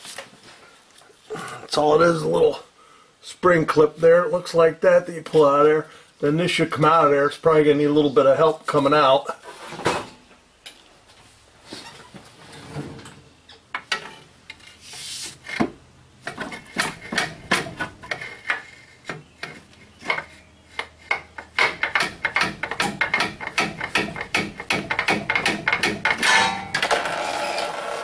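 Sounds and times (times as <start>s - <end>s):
metal rubbing and scraping: 16.3s - 27.8s.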